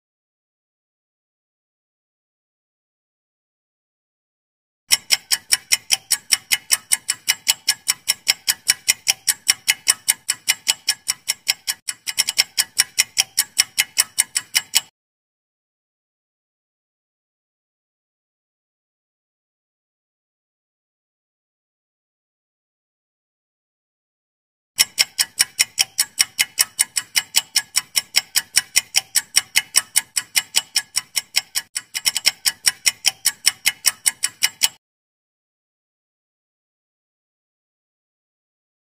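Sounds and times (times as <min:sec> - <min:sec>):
clock ticking fast: 0:04.9 - 0:14.9, 0:24.8 - 0:34.8.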